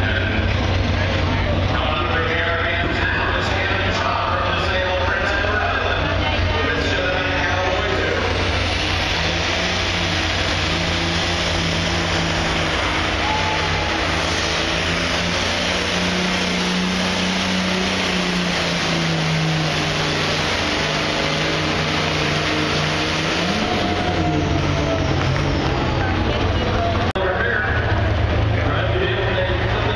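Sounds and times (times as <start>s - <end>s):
tractor diesel engine droning: 0.0s - 29.9s.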